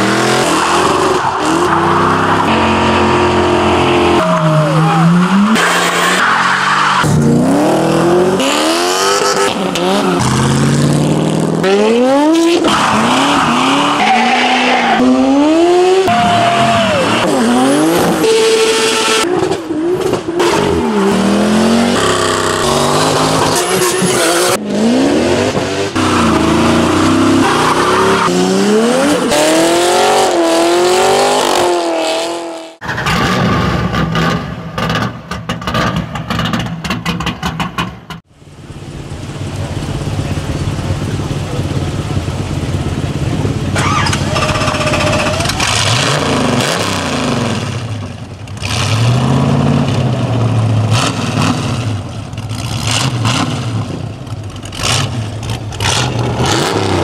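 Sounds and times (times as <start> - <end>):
car engines revving: 0.0 - 57.0
tyre squeal: 43.8 - 45.8.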